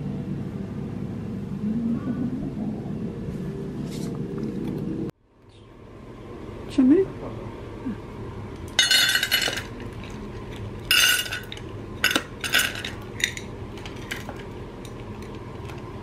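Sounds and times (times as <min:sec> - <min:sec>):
kibble rattling into metal bowl: 0:08.8 - 0:14.5.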